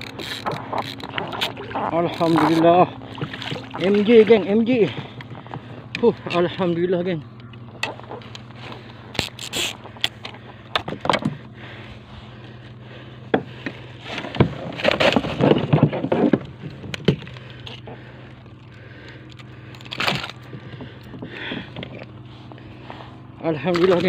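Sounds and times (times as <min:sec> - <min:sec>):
knocks and scraping on plastic kayak: 0:13.3 - 0:18.0.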